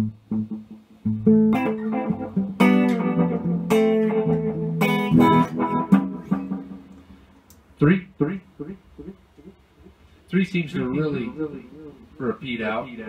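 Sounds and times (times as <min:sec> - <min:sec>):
electric guitar with echo: 0:00.0 - 0:07.4, 0:10.7 - 0:12.2.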